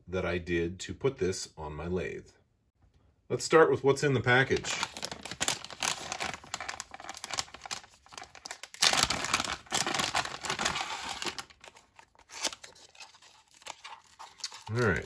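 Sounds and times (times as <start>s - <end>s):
plastic zip bag crinkling: 4.5s - 15.0s.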